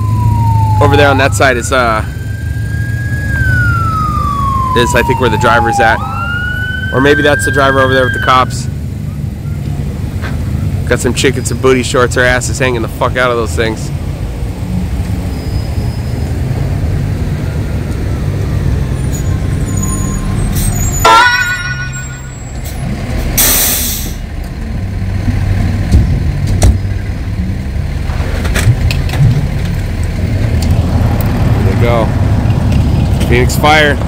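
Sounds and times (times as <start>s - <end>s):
siren chirp: 0.0s - 9.6s, 17.4s - 22.7s
diesel engine running low: 0.0s - 34.0s
air brakes hissing: 22.3s - 24.3s.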